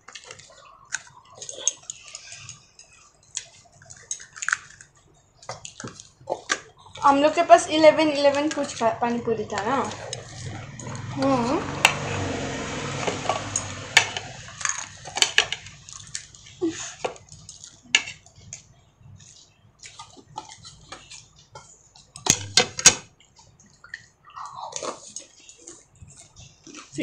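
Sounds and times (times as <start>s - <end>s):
chopsticks clicking on metal bowls: 0.0s - 6.6s, 8.0s - 12.0s
wet eating sounds: 0.0s - 27.0s.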